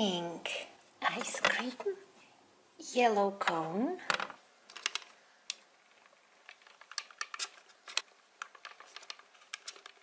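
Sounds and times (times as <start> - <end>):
plastic toy clicking: 4.2 - 10.0.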